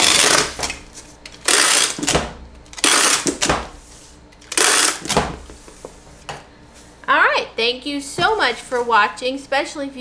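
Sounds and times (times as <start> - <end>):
packing tape unrolling from tape gun: 0.0 - 3.5, 4.3 - 5.2.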